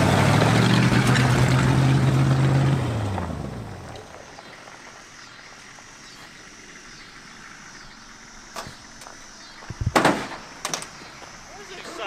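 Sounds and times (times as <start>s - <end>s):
loud bangs: 9.8s - 10.9s.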